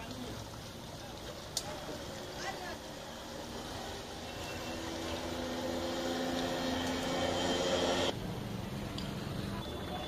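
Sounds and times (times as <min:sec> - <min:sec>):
engine drone: 0:01.9 - 0:08.7.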